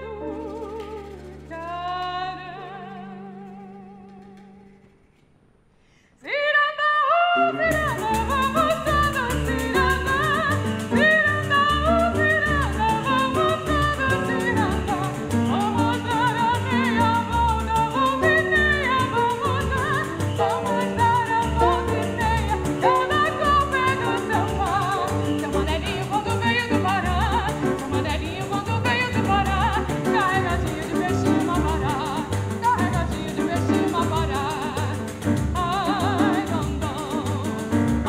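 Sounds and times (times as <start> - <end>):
soprano singing with vibrato: 0.0 - 4.6, 6.2 - 37.8
piano: 0.0 - 38.0
double bass notes pulsing: 7.7 - 38.0.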